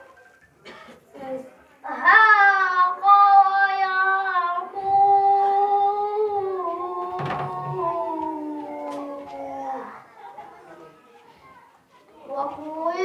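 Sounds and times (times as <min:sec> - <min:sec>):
boy chanting melodically: 0:01.2 - 0:10.0.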